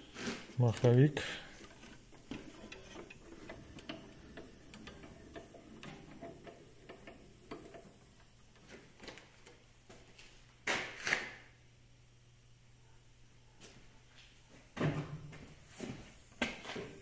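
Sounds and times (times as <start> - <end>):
handwheel mechanism clicking: 0.8 - 9.5.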